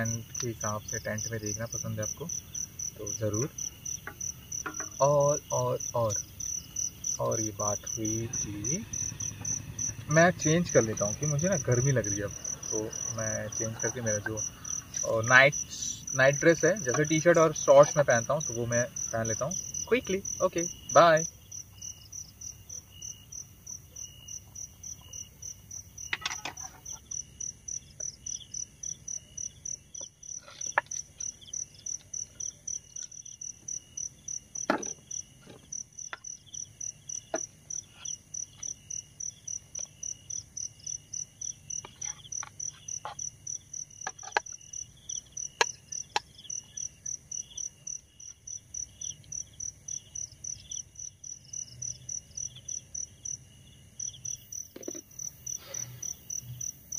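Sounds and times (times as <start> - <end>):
high pulsed insect chirp: 0.0 - 56.9
low irregular insect chirping: 0.0 - 56.9
knocks and rustles: 4.0 - 5.0.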